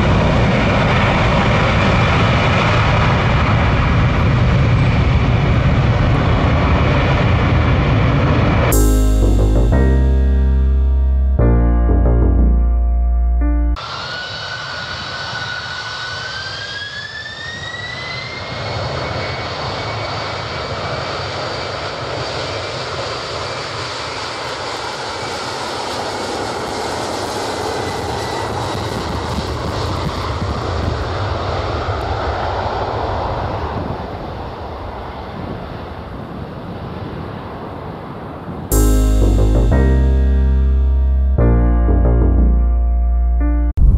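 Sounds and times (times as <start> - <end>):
jet engines spooling up whine: 13.8 - 30.9.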